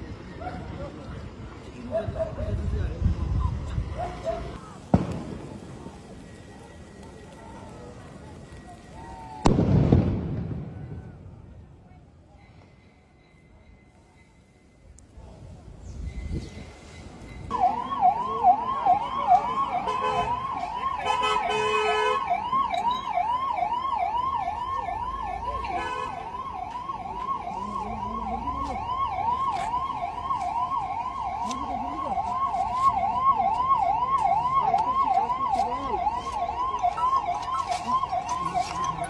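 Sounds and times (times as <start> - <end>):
siren yelping: 17.5 - 39.0.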